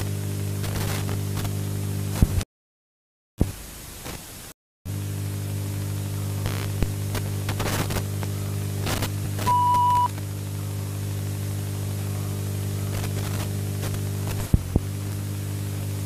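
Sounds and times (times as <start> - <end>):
tape hiss and static: 0.0 - 2.4, 3.4 - 16.0
low electrical hum: 4.9 - 16.0
crackling clicks: 6.4 - 10.3, 12.9 - 14.9
short steady beep: 9.5 - 10.1.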